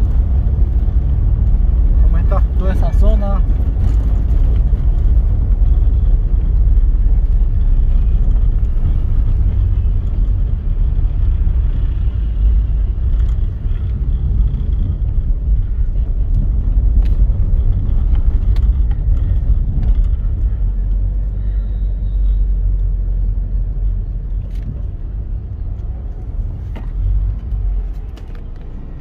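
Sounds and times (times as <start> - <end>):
car engine and tyres rumbling: 0.0 - 29.0.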